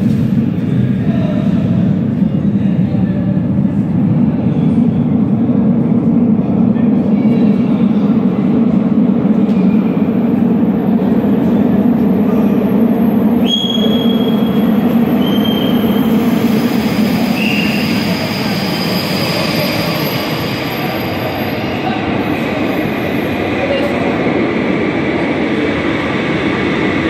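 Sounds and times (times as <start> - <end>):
metro train rumble: 0.0 - 27.0
high-pitched wheel squeals: 13.4 - 21.2.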